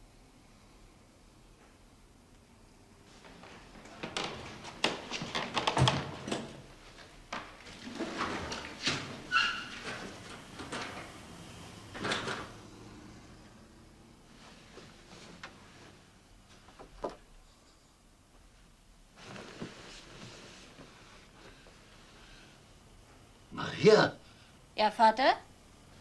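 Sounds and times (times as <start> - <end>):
short squeak: 9.3 - 9.8.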